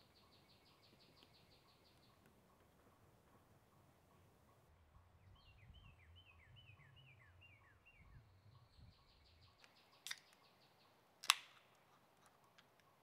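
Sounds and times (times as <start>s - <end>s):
faint rapid bird trill: 0.0s - 11.2s
songbird singing: 0.0s - 13.0s
sharp click: 9.6s - 10.5s, 11.2s - 11.9s.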